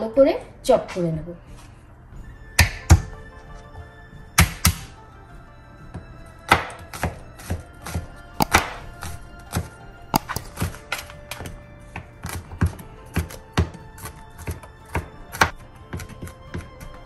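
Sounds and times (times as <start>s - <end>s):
soft background music: 0.0s - 17.0s
knife chopping on cutting board: 4.4s - 4.9s, 6.5s - 10.8s, 12.0s - 16.7s.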